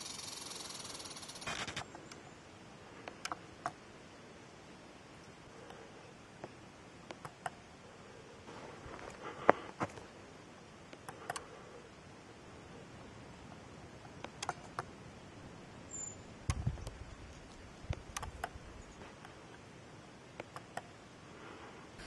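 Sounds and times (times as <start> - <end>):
background hiss: 0.0 - 22.0.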